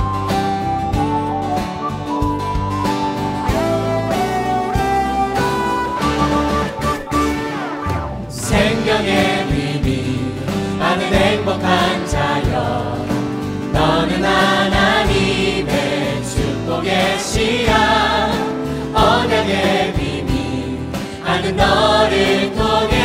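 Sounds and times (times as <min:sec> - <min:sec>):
band accompaniment: 0:00.0 - 0:23.0
choir singing: 0:08.3 - 0:23.0.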